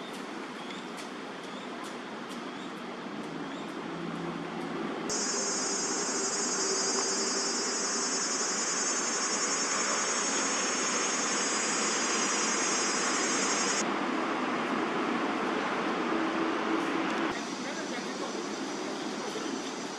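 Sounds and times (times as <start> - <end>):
city traffic hum: 0.0 - 19.9
high-pitched insect drone: 5.1 - 13.8.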